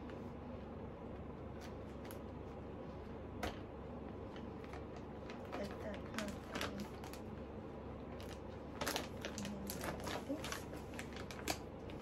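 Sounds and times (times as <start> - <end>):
plastic bag crinkling: 4.3 - 7.4, 8.0 - 12.0.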